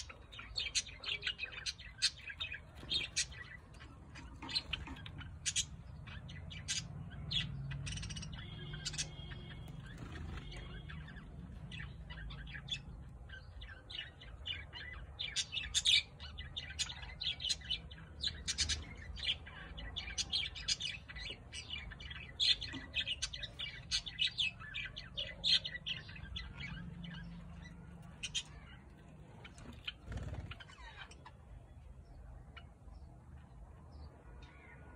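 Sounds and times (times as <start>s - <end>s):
budgerigars chirping: 0.0s - 31.6s.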